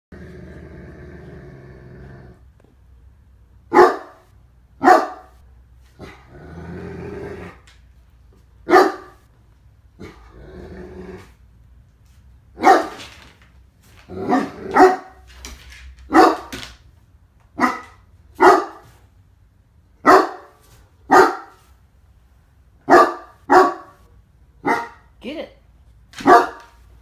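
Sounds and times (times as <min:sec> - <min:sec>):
dog growling low: 0:00.1 - 0:02.5, 0:05.9 - 0:07.7, 0:10.0 - 0:11.5
dog barking loudly: 0:03.7 - 0:05.4, 0:08.6 - 0:09.3, 0:12.6 - 0:13.0, 0:14.2 - 0:15.2, 0:16.1 - 0:16.6, 0:17.6 - 0:19.0, 0:20.0 - 0:21.6, 0:22.8 - 0:24.0, 0:24.6 - 0:25.1, 0:26.2 - 0:26.8.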